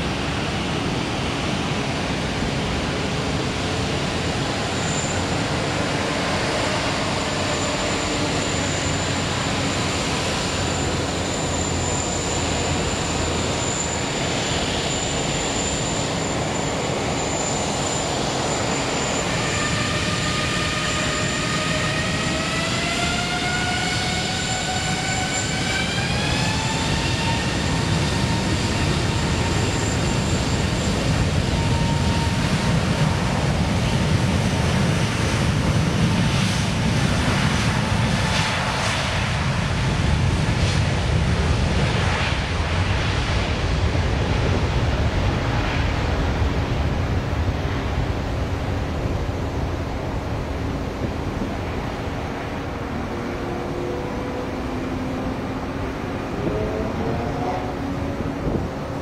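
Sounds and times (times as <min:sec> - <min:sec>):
jet engines running: 0:00.0 - 0:59.0
engine whine rising in pitch: 0:51.4 - 0:59.0.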